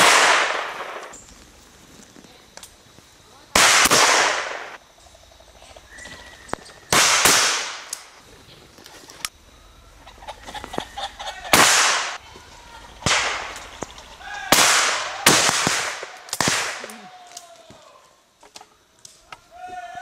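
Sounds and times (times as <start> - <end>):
shotguns firing with echo: 0.0 - 1.2, 3.5 - 4.8, 6.9 - 8.0, 11.5 - 12.2, 13.0 - 13.8, 14.5 - 16.9
faint calls: 4.7 - 7.0, 9.4 - 15.3.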